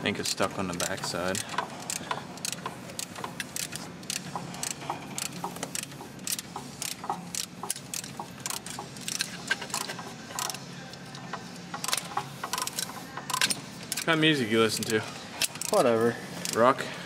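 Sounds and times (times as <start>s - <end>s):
metallic clicks and clinks of tools: 0.8s - 10.6s.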